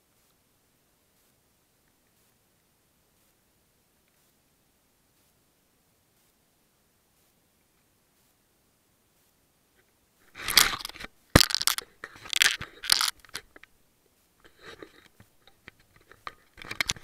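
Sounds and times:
camera handling scratches: 10.3 - 13.7, 14.4 - 17.0
dry grass crunching and rustling: 10.3 - 13.7.

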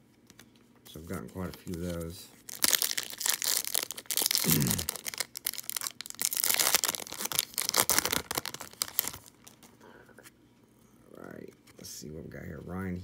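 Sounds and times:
wrapper tearing and crinkling: 1.3 - 9.6.

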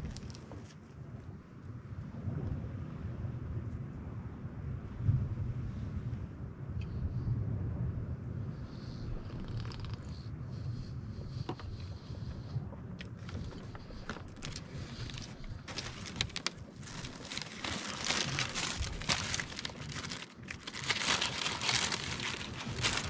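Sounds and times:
plastic packaging crinkling: 0.0 - 0.4, 9.3 - 10.0, 13.0 - 23.0.

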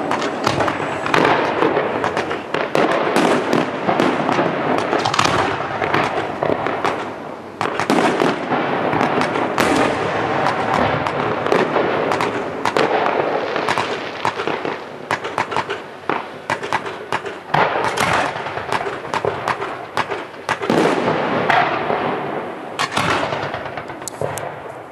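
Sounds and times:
fireworks hissing rush: 0.0 - 16.5
fireworks bangs and crackling: 0.0 - 24.9.

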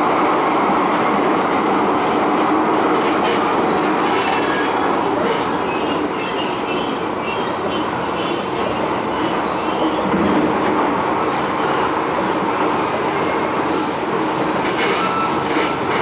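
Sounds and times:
high-pitched wheel squeals: 14.8 - 15.8.

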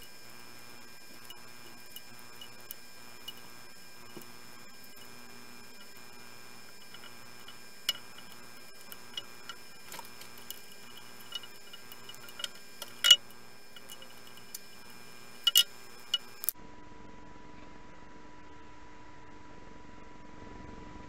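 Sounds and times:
faint electronic hum: 0.0 - 21.0
wooden pieces clicking on metal table: 6.9 - 14.7, 15.4 - 16.5.

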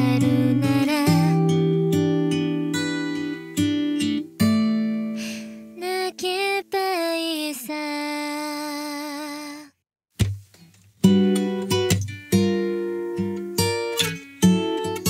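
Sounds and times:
woman singing: 0.0 - 1.7, 5.8 - 9.8
strummed acoustic guitar chords: 0.0 - 5.8, 10.2 - 15.0.

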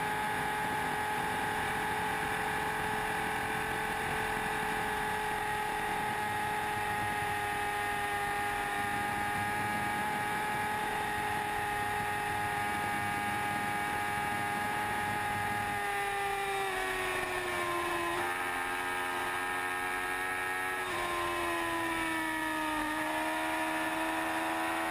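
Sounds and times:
motorcycle engine revving high: 0.0 - 24.9.

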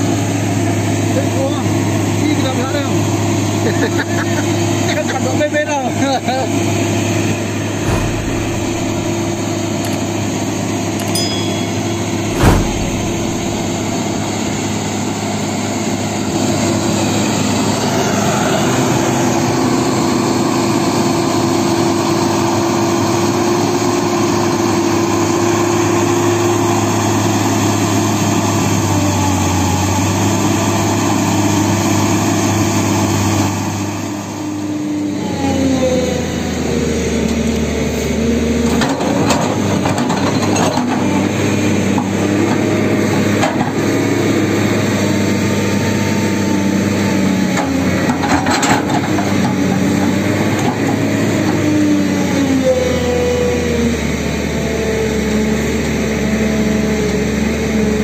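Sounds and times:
excavator diesel engine running: 7.2 - 10.0
sharp knock: 7.8 - 9.9, 11.2 - 14.3.

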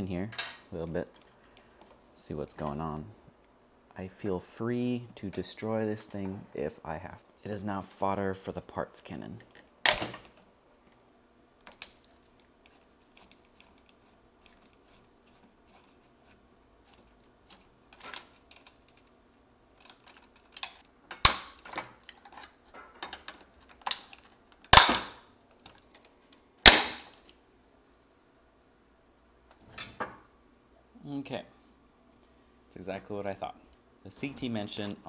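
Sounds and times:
plastic snapping cracks: 9.8 - 10.4, 11.6 - 12.1, 19.8 - 22.2, 23.0 - 27.4.

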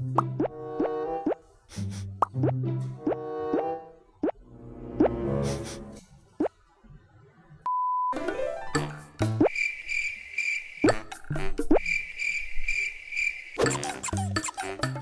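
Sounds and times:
cricket chirping effect: 9.4 - 13.8.

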